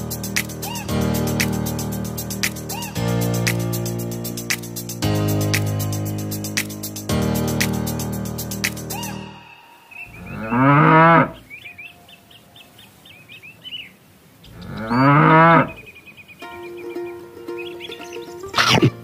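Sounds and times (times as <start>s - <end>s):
faint bird chirps: 8.9s - 15.1s, 15.7s - 18.7s
cow mooing: 10.2s - 11.4s, 14.6s - 15.8s.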